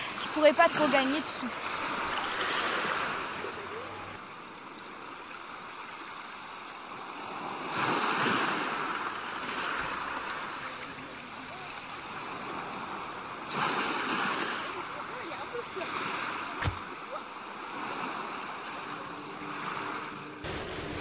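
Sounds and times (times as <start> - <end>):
sea surf washing in: 0.0 - 21.0.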